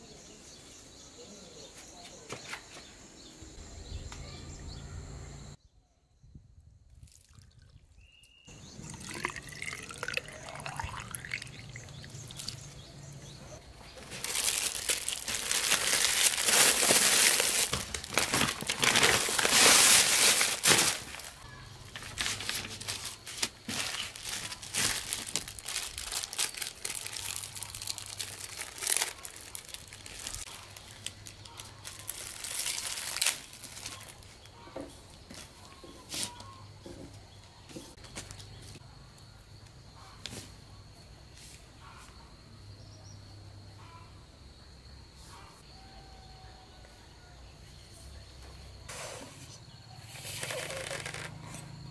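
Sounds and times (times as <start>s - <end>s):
water pouring into bamboo tube: 7.0s - 7.9s, 8.6s - 12.6s
plastic bag rustling: 13.8s - 34.3s
plastic packets crinkling: 13.8s - 34.3s.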